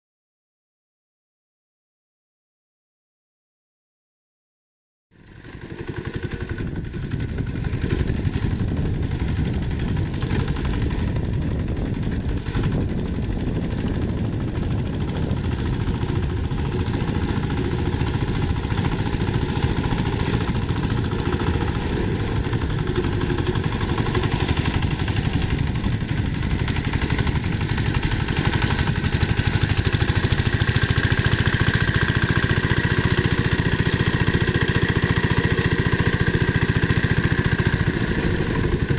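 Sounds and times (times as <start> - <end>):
diesel engine chugging: 5.2 - 38.9.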